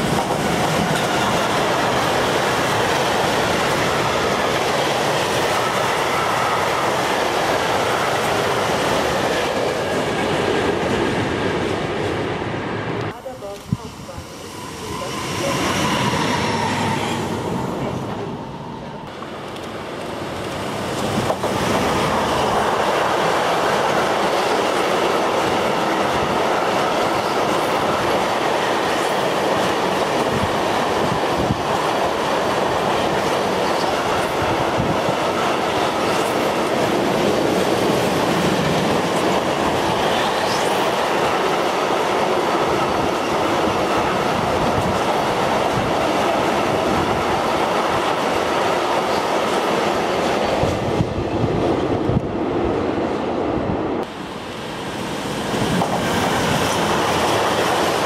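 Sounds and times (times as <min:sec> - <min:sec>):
freight train rumbling past: 0:00.0 - 0:58.0
train wheel squeal: 0:14.3 - 0:19.0.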